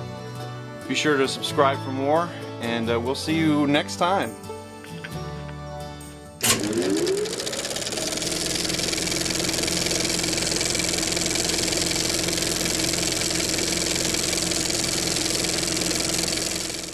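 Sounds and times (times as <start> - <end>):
motorcycle engine running: 6.5 - 16.9.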